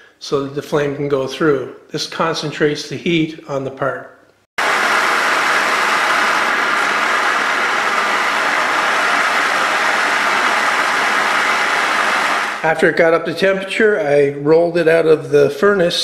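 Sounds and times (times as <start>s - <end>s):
gas torch hissing: 4.6s - 12.6s.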